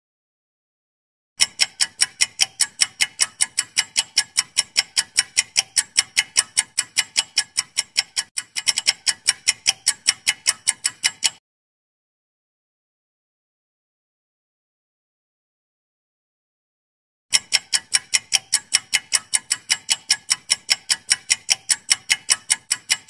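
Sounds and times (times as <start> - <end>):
clock ticking: 1.4 - 11.4, 17.3 - 23.0.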